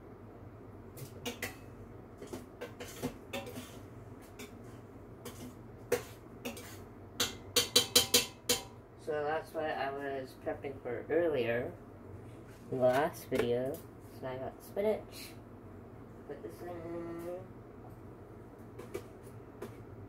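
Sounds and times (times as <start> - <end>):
spoon scraping metal pot: 2.2 - 3.8, 5.2 - 8.6
sharp taps on pot: 5.9 - 8.8.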